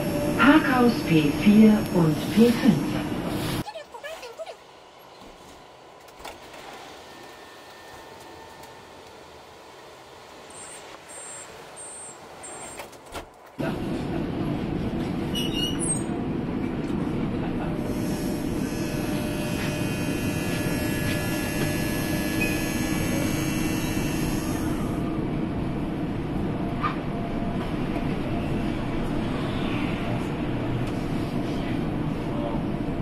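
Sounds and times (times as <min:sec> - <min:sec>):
high electric whine: 0:00.0 - 0:03.0, 0:17.8 - 0:25.1.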